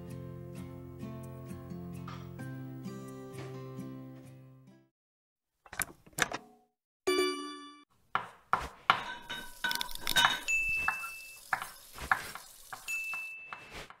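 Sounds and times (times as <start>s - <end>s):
utensils clinking against dishes: 9.0s - 13.7s
high ringing tone: 10.5s - 11.4s.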